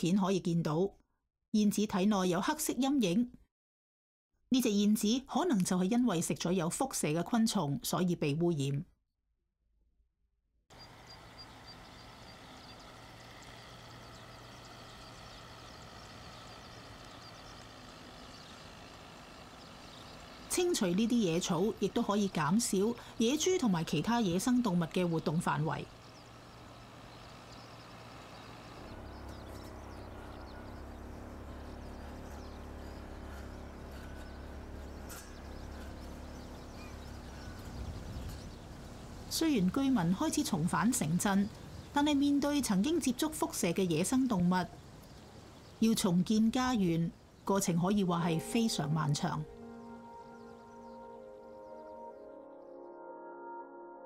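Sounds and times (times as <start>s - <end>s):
tractor engine hum: 10.7s - 52.2s
brush cutter cutting grass: 11.0s - 40.0s
faint high ticks: 16.7s - 17.8s.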